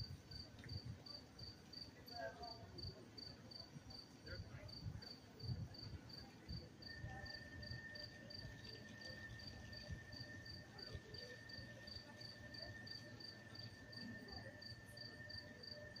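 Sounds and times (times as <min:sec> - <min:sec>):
cricket chirping: 0:05.4 - 0:16.0.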